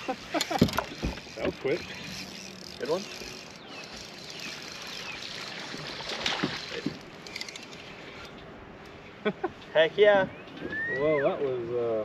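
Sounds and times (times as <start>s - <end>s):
water splashing: 0.0s - 8.2s
water lapping against boat hull: 0.0s - 8.3s.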